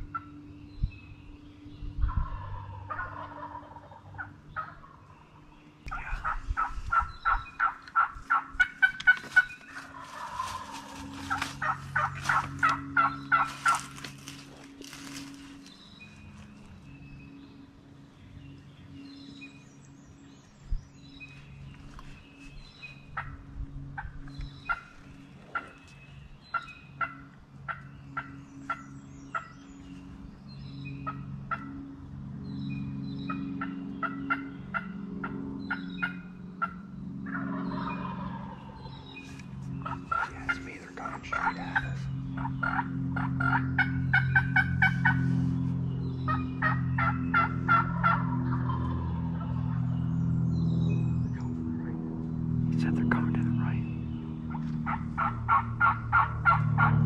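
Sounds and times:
steady low hum: 0:00.0 - 0:57.0
turkey gobbling: 0:02.2 - 0:05.0, 0:05.9 - 0:13.9, 0:26.5 - 0:28.8, 0:33.6 - 0:38.6, 0:39.8 - 0:45.2, 0:46.3 - 0:49.7, 0:54.5 - 0:57.0.

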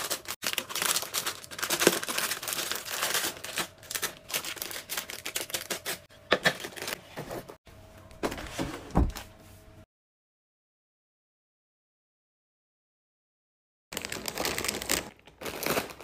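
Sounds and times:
plastic wrappers crinkling: 0:00.0 - 0:07.0, 0:13.9 - 0:16.0.

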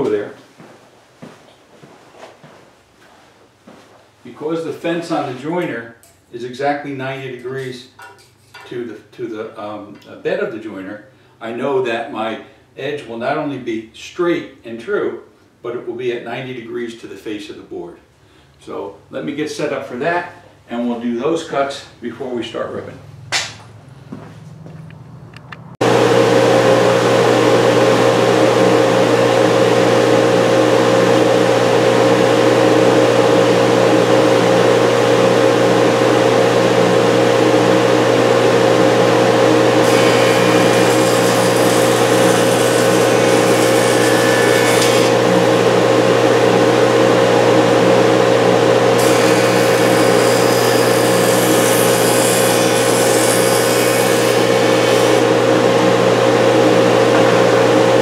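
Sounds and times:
jointer motor humming: 0:25.4 - 0:58.0
jointer cutting wood: 0:25.8 - 0:58.0.

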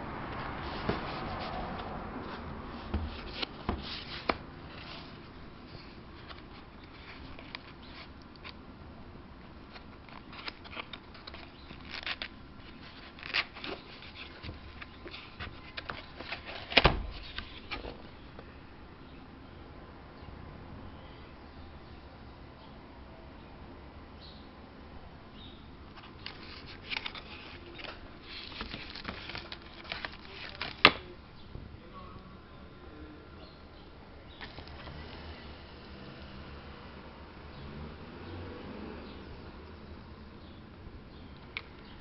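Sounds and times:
cardboard scraping and tapping: 0:00.4 - 0:05.2, 0:09.8 - 0:18.1, 0:26.0 - 0:31.0
plastic wrap rustling: 0:26.0 - 0:31.0.

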